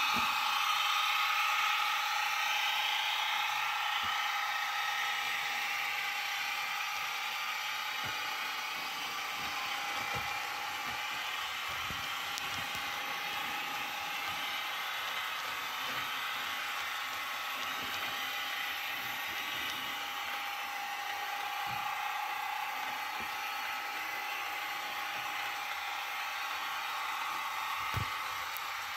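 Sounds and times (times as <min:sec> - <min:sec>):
model train motor whir: 0:00.0 - 0:28.9.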